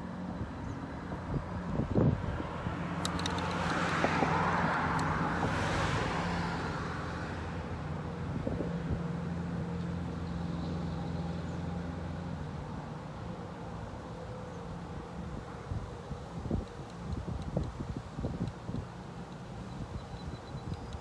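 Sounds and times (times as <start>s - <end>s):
vehicle passing by: 0.0s - 16.6s.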